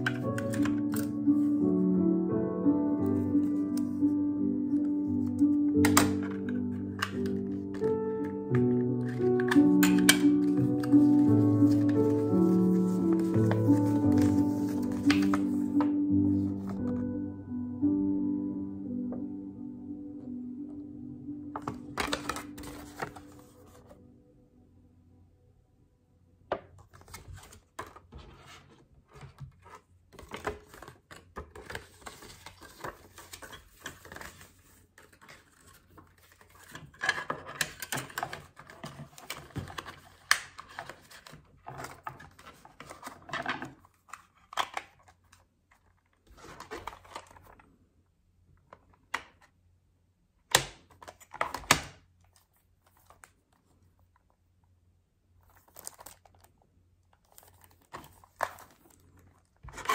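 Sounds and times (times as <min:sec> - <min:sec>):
plastic cassette cases handled: 0:00.0 - 0:01.2, 0:05.3 - 0:15.9, 0:21.6 - 0:23.5, 0:26.8 - 0:28.2, 0:29.1 - 0:47.7, 0:50.5 - 0:53.4, 0:55.4 - 0:56.5, 0:57.2 - 0:59.9
paper insert rustling: 0:00.0 - 0:01.6, 0:04.7 - 0:17.1, 0:21.6 - 0:24.0, 0:26.8 - 0:47.7, 0:50.9 - 0:53.8, 0:55.4 - 0:56.6, 0:57.2 - 0:59.9.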